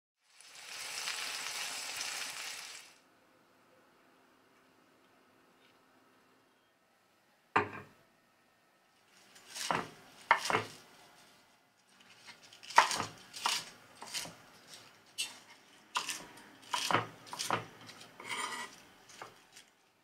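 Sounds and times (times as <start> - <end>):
knife cutting on wooden board: 9.4 - 10.8, 12.1 - 19.3.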